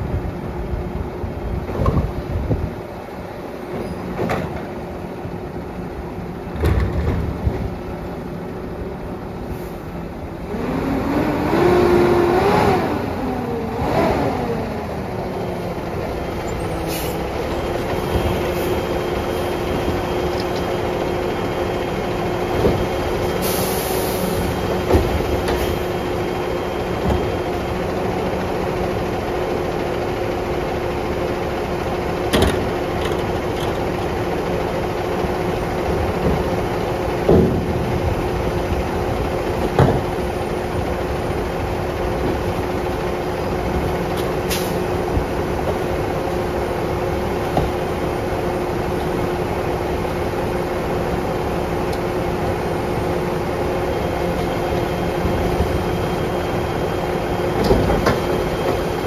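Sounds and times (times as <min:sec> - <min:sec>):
garbage truck engine: 0:00.0 - 0:59.0
air hiss: 0:16.9 - 0:17.2, 0:23.4 - 0:24.6.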